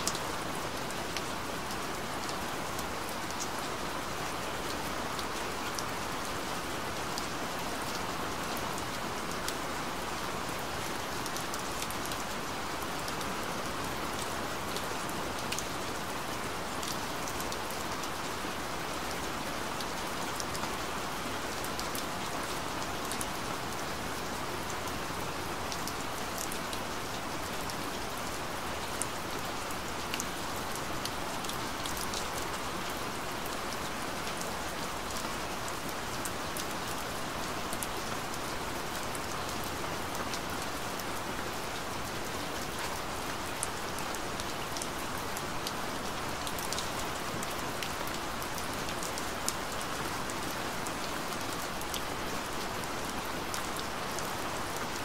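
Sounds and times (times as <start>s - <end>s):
rain falling: 0.0s - 55.0s.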